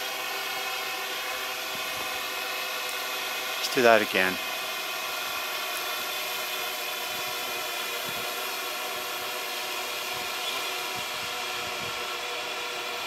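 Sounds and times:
drone motors whining: 0:00.0 - 0:13.0.

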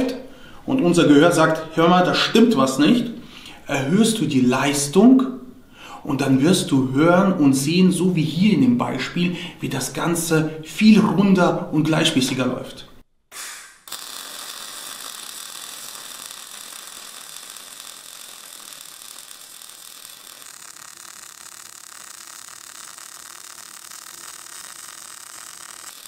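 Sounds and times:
welding arc burning: 0:13.3 - 0:26.0.

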